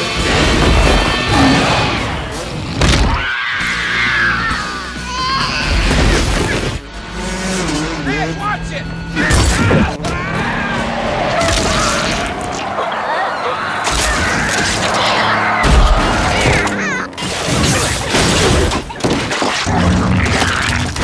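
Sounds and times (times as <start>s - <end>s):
film music: 0.0s - 21.0s
truck skidding: 6.5s - 17.2s.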